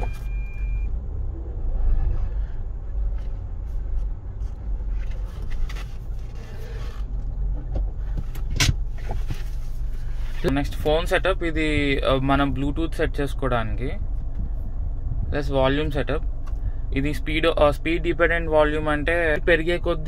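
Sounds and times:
short high beep: 0:00.0 - 0:00.9
car engine and tyre rumble: 0:00.0 - 0:20.0.

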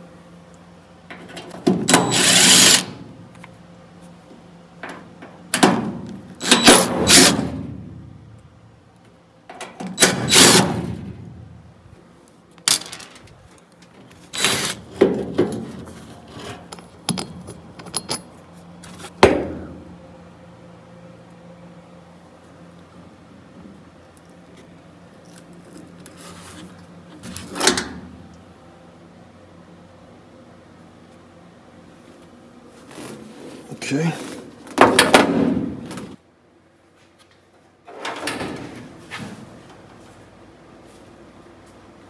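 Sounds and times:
cordless drill running in bursts: 0:02.1 - 0:02.9
metal parts clicking and clinking: 0:12.6 - 0:14.8, 0:16.4 - 0:18.4.

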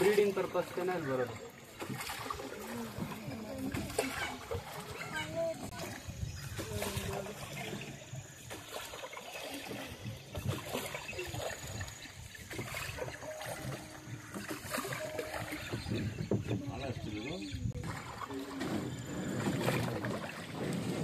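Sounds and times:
water splashing around boat: 0:00.0 - 0:21.0
knocks on boat: 0:13.4 - 0:16.9.

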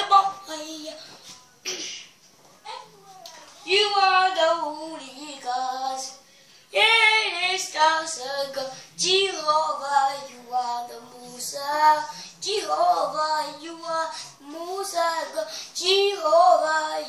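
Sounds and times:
young child singing: 0:00.0 - 0:01.4, 0:02.7 - 0:06.2, 0:06.8 - 0:17.0.

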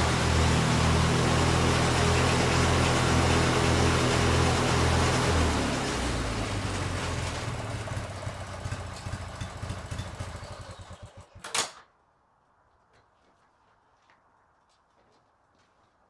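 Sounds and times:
mower engine running down: 0:00.0 - 0:11.6.

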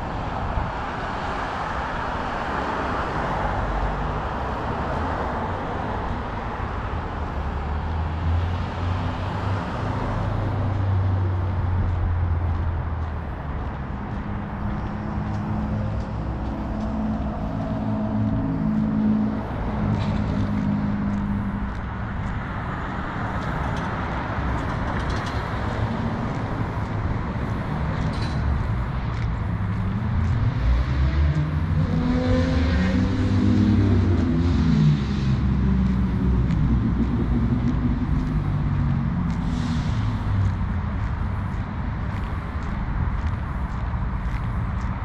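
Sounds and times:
steady engine hum: 0:00.0 - 0:45.0
vehicles passing: 0:00.0 - 0:45.0
low engine rumble: 0:09.9 - 0:45.0.

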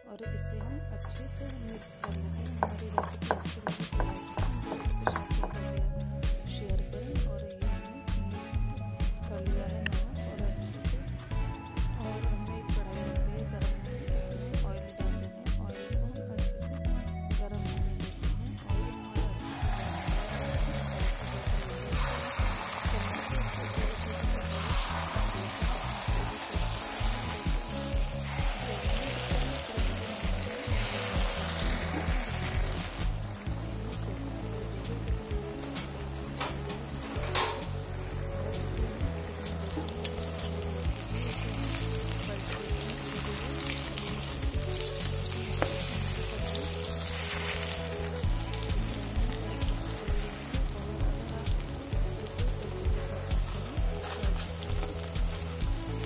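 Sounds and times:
background music with steady beat: 0:00.0 - 0:56.0
batter sizzling in hot oil: 0:19.1 - 0:56.0.

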